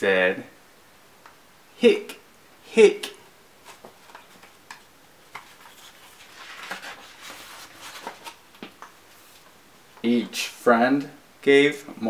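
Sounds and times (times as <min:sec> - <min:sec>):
paper pages rustling: 0:03.6 - 0:09.5.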